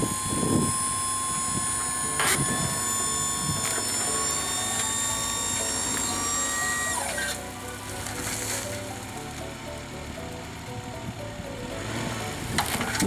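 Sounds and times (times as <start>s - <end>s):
mechanical whine of tipping bed: 0.0s - 8.9s, 12.4s - 13.0s.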